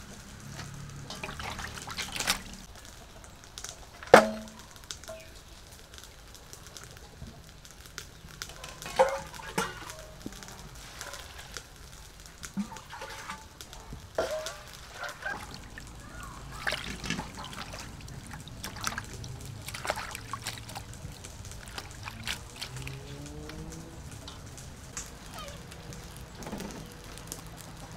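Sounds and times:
water sloshing and trickling: 0.0s - 6.0s, 6.7s - 27.9s
metal bowls striking a basin: 4.2s - 4.6s.

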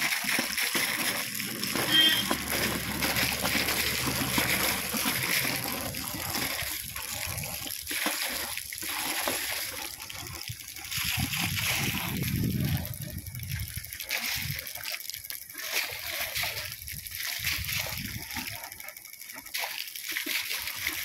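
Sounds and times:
water splashing onto soil: 0.0s - 13.5s
water gushing from pipes: 0.0s - 21.0s.

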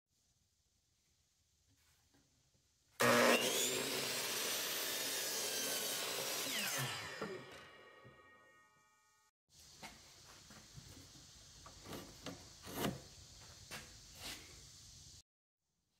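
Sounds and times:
miter saw cutting wood: 3.0s - 8.6s.

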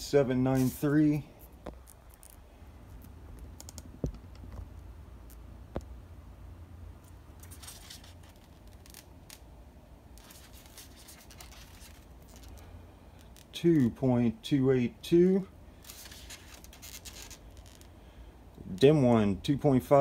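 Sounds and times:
low steady hum: 0.0s - 20.0s
faint scratching: 0.5s - 3.8s, 7.0s - 9.4s, 10.2s - 12.6s.

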